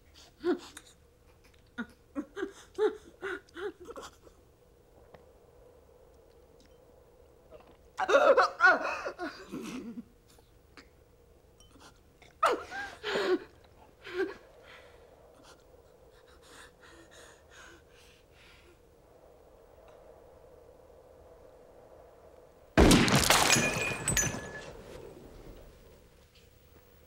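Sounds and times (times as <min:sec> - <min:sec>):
faint breathing: 0:13.0 - 0:19.4.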